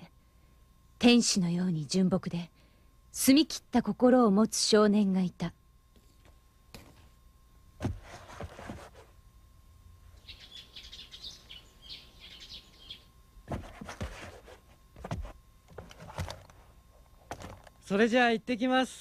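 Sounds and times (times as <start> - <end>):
small birds chirping: 10.1 - 13.2.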